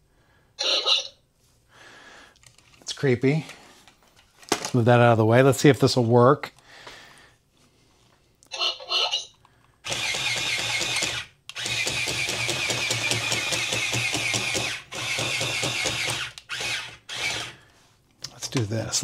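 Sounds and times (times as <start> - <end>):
toy robot motors whirring and ticking: 9.8 - 17.6.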